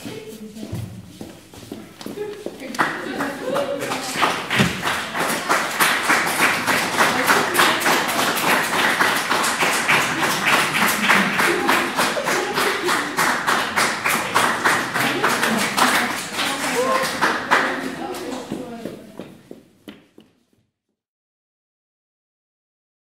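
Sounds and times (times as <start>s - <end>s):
audience clapping in rhythm: 2.1s - 20.4s.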